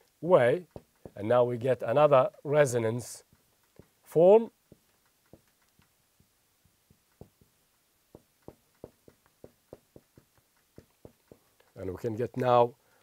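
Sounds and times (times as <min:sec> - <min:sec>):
marker tapping on whiteboard: 0:00.4 - 0:02.0, 0:03.2 - 0:11.8.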